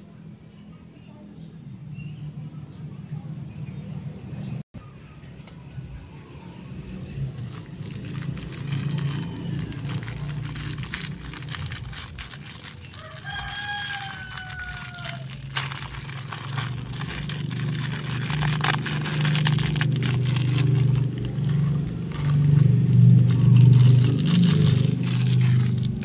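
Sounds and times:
plastic bag tearing: 0:07.3 - 0:26.0
rooster crowing: 0:12.8 - 0:17.3
low hum: 0:14.0 - 0:26.0.

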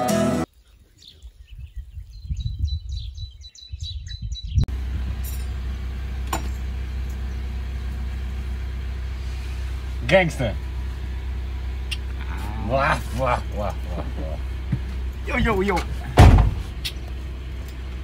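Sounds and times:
small birds chirping: 0:00.5 - 0:04.7, 0:10.6 - 0:16.1
wind rumble on microphone: 0:01.0 - 0:05.3
van engine idling: 0:04.7 - 0:18.0.

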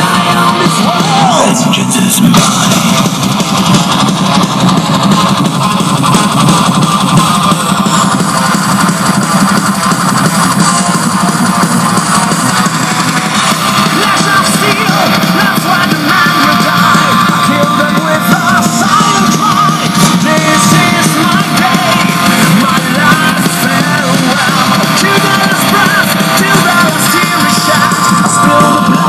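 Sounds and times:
rock music with shouted vocals: 0:00.0 - 0:29.0.

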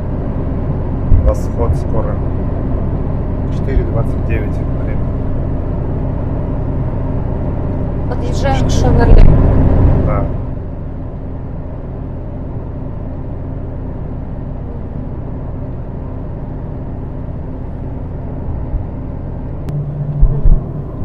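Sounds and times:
car road and engine noise: 0:00.0 - 0:21.0
short low thumps: 0:19.7 - 0:21.0.

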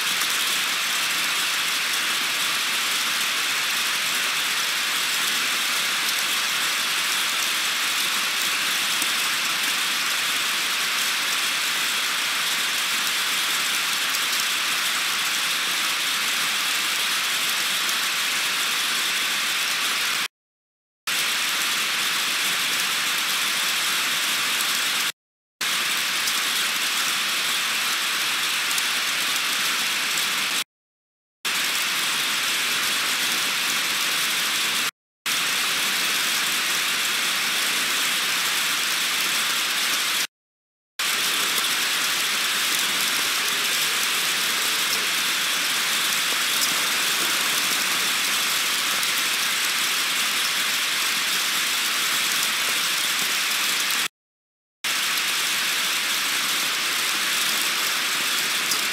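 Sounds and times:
heavy rain pouring: 0:00.1 - 0:20.3, 0:31.5 - 0:40.3, 0:41.0 - 0:54.1, 0:54.9 - 0:58.9.

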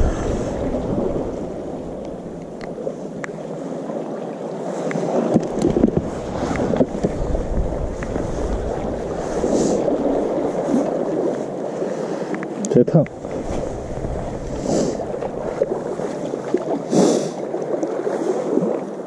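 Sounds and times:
wind buffeting microphone: 0:00.0 - 0:03.6, 0:05.0 - 0:11.6, 0:13.0 - 0:17.6
wind and sea water rushing: 0:00.0 - 0:19.0.

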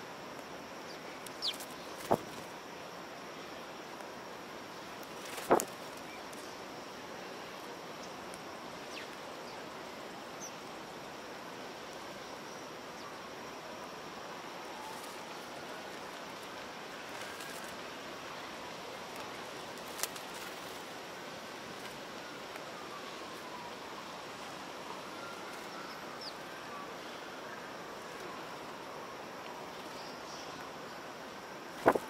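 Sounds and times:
city background hiss: 0:00.0 - 0:32.0
sparrows chirping: 0:00.9 - 0:02.1.

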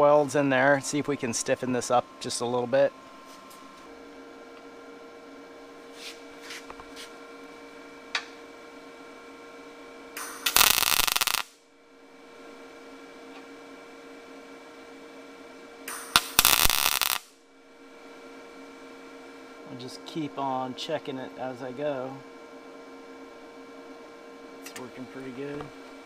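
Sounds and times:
steady hum: 0:00.0 - 0:26.0
welding arc bursts: 0:10.2 - 0:11.6, 0:15.9 - 0:17.3.

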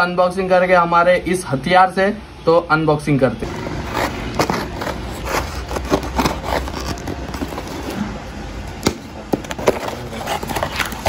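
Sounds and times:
scissors cutting packing tape: 0:03.9 - 0:08.0, 0:09.6 - 0:11.0.

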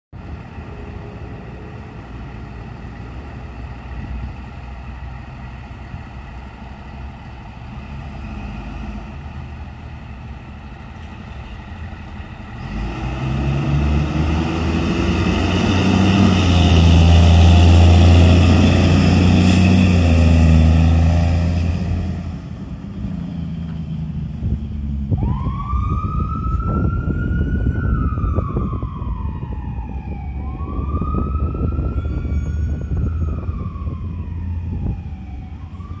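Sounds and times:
fire engine diesel engine: 0:00.1 - 0:36.0
siren wailing: 0:25.1 - 0:36.0.

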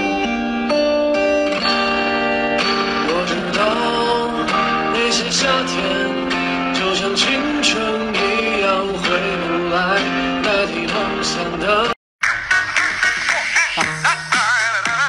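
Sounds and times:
plucked guitar melody: 0:00.0 - 0:12.0.

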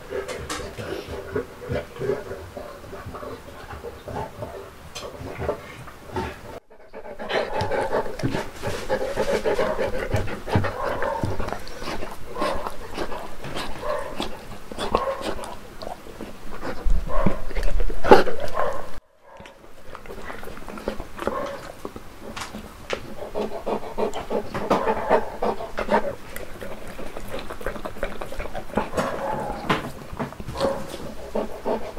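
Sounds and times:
dog panting: 0:00.0 - 0:18.9, 0:19.7 - 0:31.9
dog chewing and licking: 0:06.6 - 0:31.9.

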